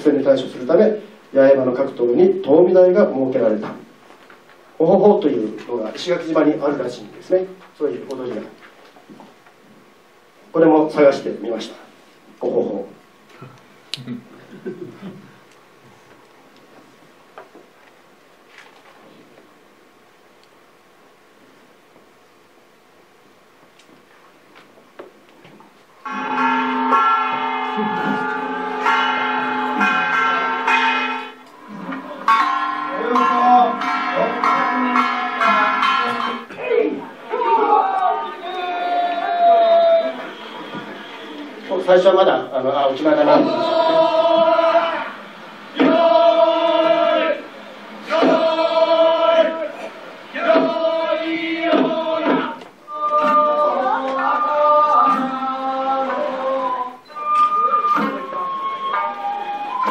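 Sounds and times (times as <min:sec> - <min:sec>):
melody of long held notes: 0:26.0 - 0:36.5
sustained ringing tones: 0:26.0 - 0:36.8, 0:55.6 - 0:59.9
men chanting in unison: 0:43.0 - 0:57.0.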